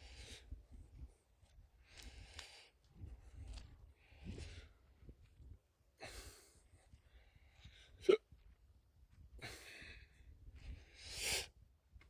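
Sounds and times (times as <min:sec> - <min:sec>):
person breathing close to microphone: 0:00.0 - 0:00.7, 0:09.4 - 0:11.6.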